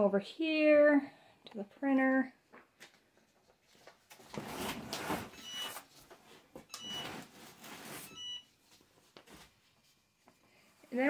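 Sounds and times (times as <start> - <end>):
paper rustling: 2.7 - 6.4
printer control panel beeps: 5.4 - 5.8, 6.7 - 7.1.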